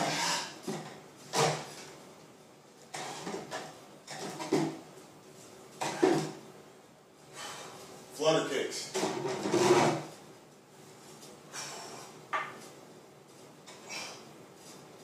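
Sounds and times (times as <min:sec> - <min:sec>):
wooden chair creaking and knocking: 0:09.0 - 0:10.1.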